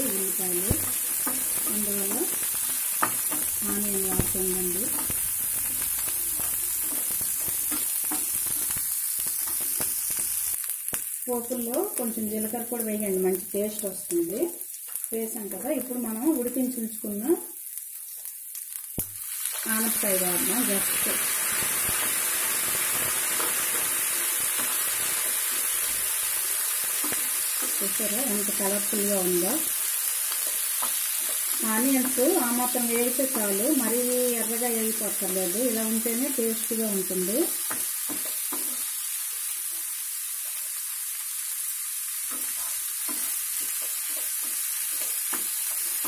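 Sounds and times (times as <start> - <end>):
food sizzling in oil: 0.0 - 46.0
spatula scraping and tapping: 0.7 - 10.2, 37.7 - 38.8, 42.3 - 46.0
spatula scraping frying pan: 42.3 - 46.0.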